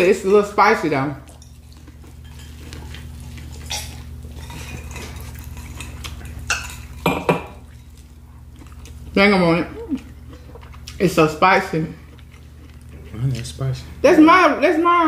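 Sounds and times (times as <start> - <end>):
steady low hum: 0.0 - 15.0
dishes and glass clinking: 3.6 - 7.8.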